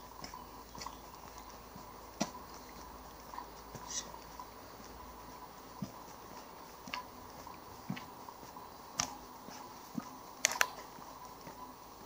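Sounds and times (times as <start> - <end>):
footsteps walking: 0.0 - 12.0
sharp clicks: 10.4 - 10.8.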